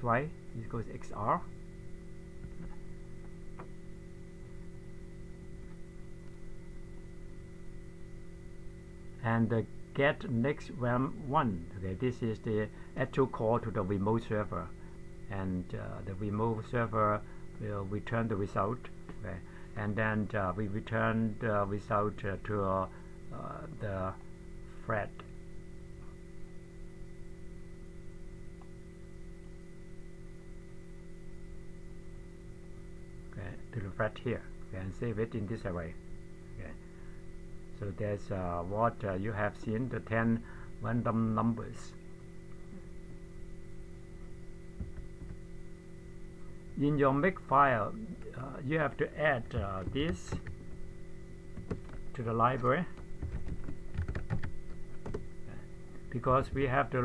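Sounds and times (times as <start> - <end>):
electrical hum: 0.0 - 57.0.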